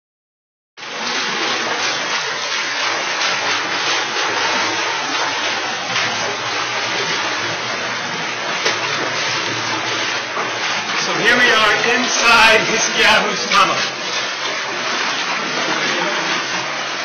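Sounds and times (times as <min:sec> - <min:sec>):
water rushing and splashing: 0:00.8 - 0:17.0.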